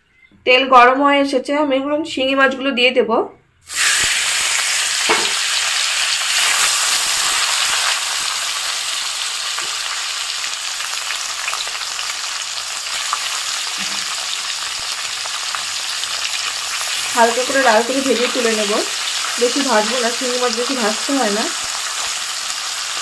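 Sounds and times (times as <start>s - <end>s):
fish sizzling in oil: 3.7s - 23.0s.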